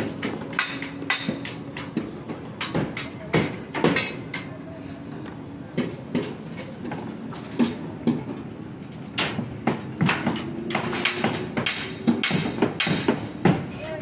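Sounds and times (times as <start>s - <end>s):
hammering: 0.0s - 4.5s, 9.2s - 13.7s.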